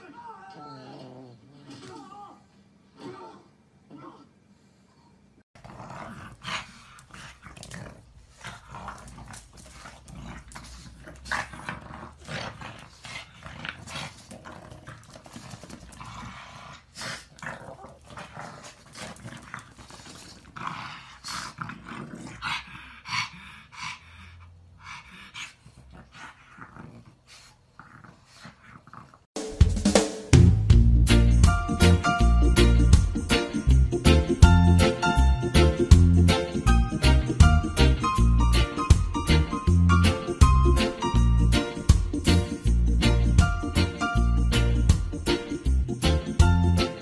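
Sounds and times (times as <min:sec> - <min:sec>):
dogs growling while play-fighting: 0:00.5 - 0:02.0, 0:05.6 - 0:29.3.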